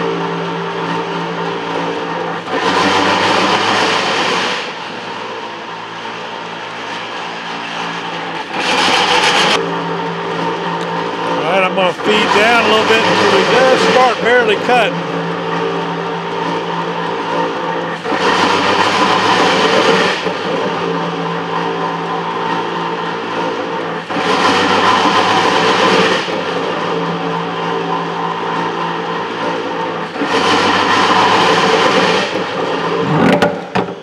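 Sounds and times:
metal planer machine hum: 0:00.0 - 0:34.0.

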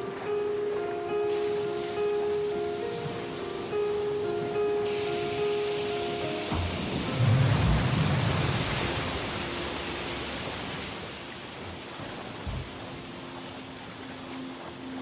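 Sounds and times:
loud rushing hiss: 0:01.2 - 0:11.2
deep rumble: 0:06.8 - 0:10.6.

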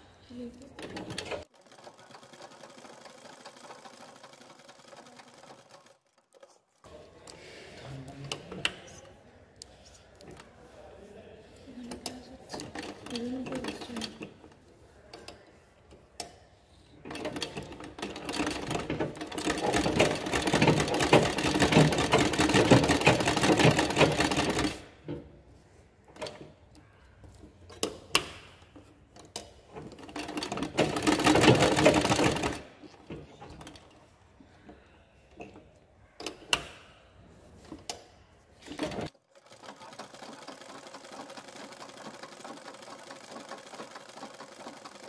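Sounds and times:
sewing machine stitching leather: 0:00.6 - 0:06.9, 0:12.0 - 0:14.5, 0:17.0 - 0:25.3, 0:29.2 - 0:33.9, 0:38.6 - 0:45.0.

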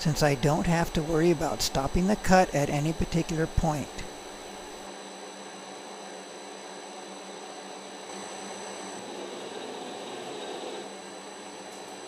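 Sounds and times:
metal lathe hum and hiss: 0:00.0 - 0:12.0.

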